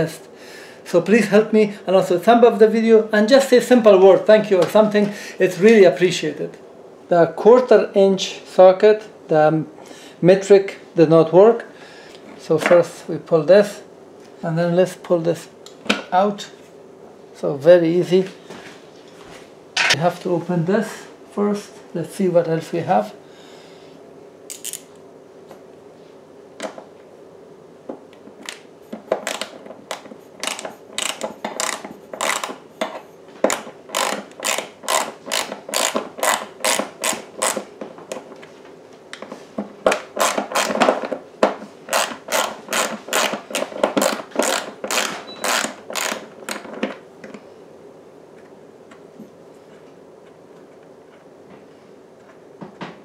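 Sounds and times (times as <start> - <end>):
ratchet wrench clicking: 30.4 - 32.6, 33.9 - 37.6, 41.9 - 46.2.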